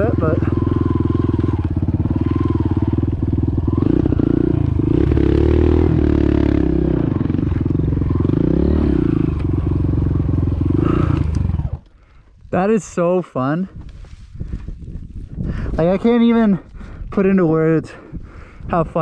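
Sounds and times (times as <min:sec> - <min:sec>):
motorcycle engine revving: 0:00.0 - 0:11.9.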